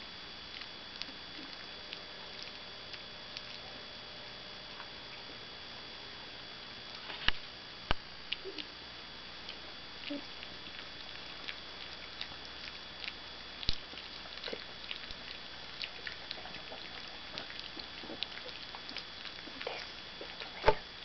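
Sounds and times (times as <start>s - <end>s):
puppies crunching kibble: 0.5s - 3.8s, 9.4s - 21.0s.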